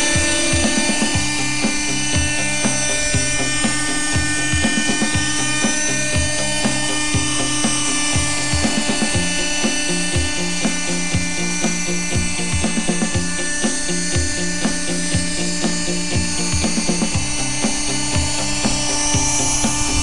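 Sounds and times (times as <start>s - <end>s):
background music with beat: 0.0s - 20.0s
model helicopter rotor whining: 0.0s - 20.0s.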